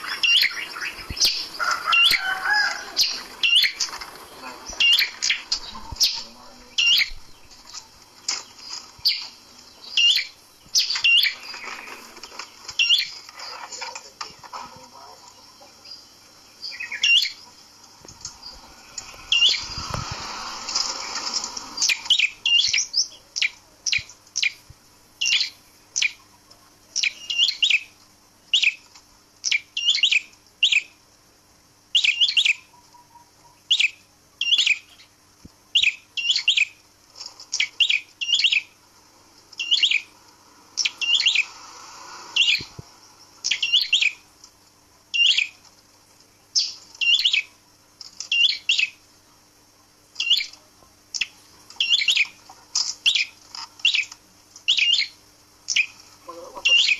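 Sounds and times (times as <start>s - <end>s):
bird chirping: 0.0s - 13.9s, 14.9s - 19.9s, 20.8s - 24.6s, 25.2s - 26.3s, 27.0s - 31.0s, 31.9s - 36.8s, 37.5s - 38.8s, 39.6s - 40.2s, 40.8s - 41.6s, 42.2s - 44.3s, 45.1s - 45.6s, 46.4s - 47.6s, 48.2s - 49.0s, 50.2s - 56.9s
rustling: 2.7s - 6.0s, 7.4s - 9.7s, 10.8s - 15.2s.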